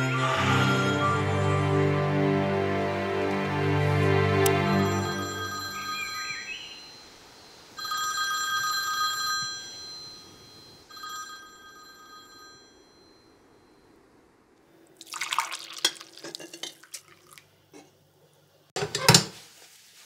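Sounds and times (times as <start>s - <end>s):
film score music: 0.0s - 6.1s
mobile phone ringtone: 4.6s - 13.3s.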